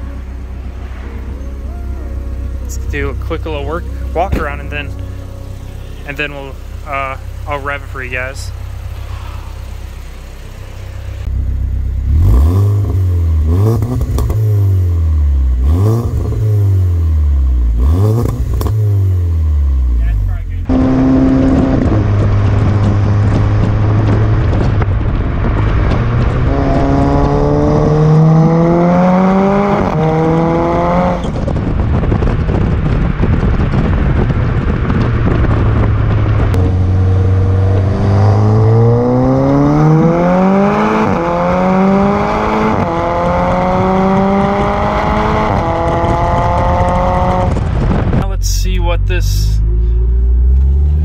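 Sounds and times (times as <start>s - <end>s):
car exhaust accelerating: 0.0s - 51.0s
road noise: 0.0s - 51.0s
wind noise on microphone: 20.7s - 48.3s.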